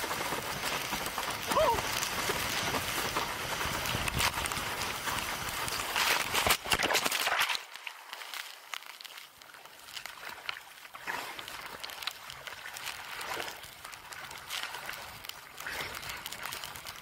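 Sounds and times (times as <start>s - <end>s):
seawater splashing and sloshing: 0.0s - 17.0s.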